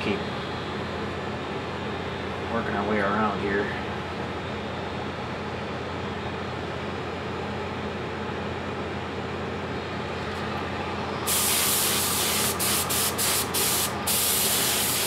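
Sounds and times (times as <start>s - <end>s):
steady machine hum: 0.0s - 15.0s
spray gun hissing: 11.2s - 15.0s.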